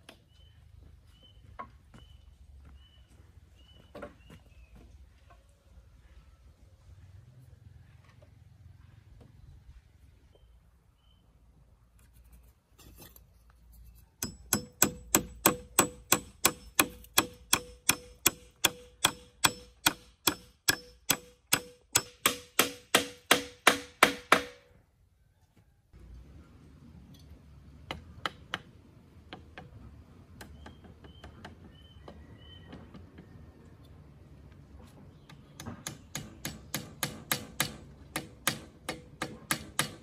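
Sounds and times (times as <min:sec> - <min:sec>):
hammer striking nail into wood: 0:14.2 - 0:24.7, 0:35.6 - 0:40.0.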